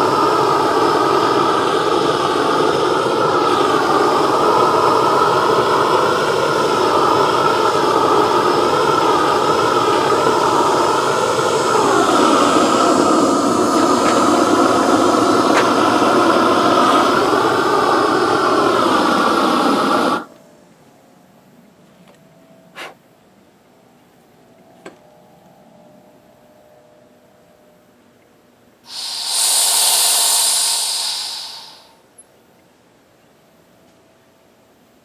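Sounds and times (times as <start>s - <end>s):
propane torch roaring: 0.0s - 20.4s, 28.8s - 32.0s.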